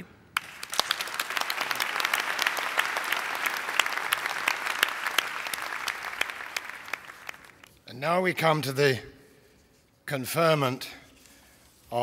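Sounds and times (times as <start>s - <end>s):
audience applauding: 0.4s - 7.7s.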